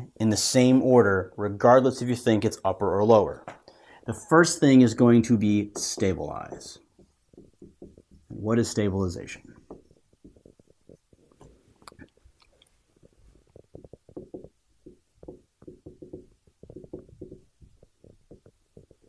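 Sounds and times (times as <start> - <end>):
marker squeaking on whiteboard: 3.9 - 19.0.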